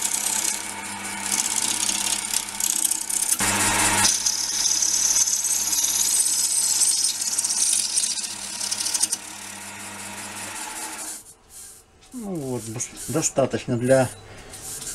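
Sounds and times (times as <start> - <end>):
lathe motor hum: 0.0 - 11.2
scraper cutting wood on lathe: 0.0 - 11.3.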